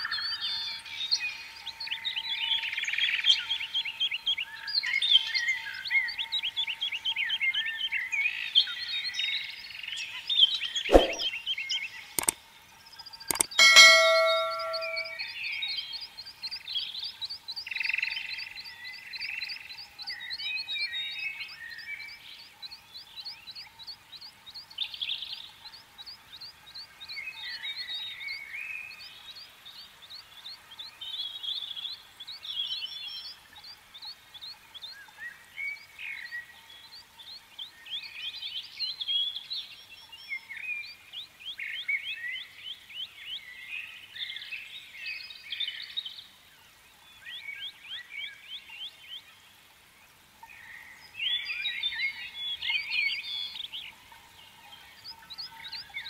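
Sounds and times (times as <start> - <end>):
birds chirping and trilling: 13.0 - 15.3, 50.4 - 56.0.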